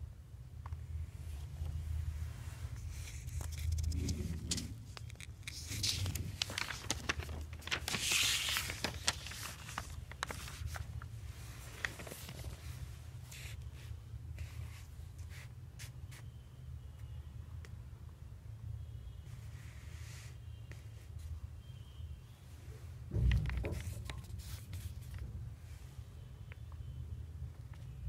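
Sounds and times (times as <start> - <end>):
paper pages rustling: 2.7 - 13.6, 23.4 - 25.3.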